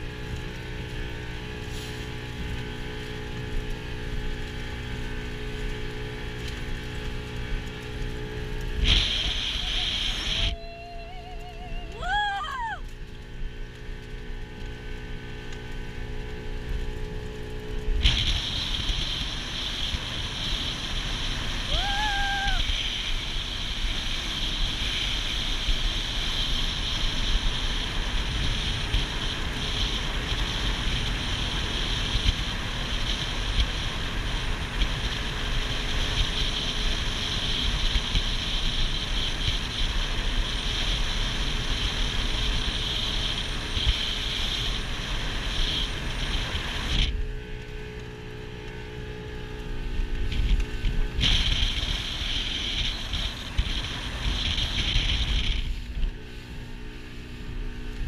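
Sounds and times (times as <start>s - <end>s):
boat engine rumble: 0.0s - 58.0s
rush of wind and water: 0.0s - 58.0s.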